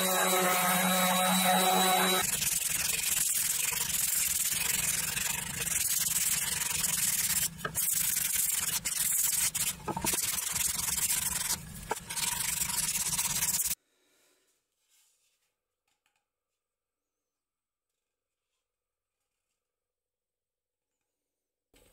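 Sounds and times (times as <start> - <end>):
sandpaper rubbing on wood: 0.0 - 13.8.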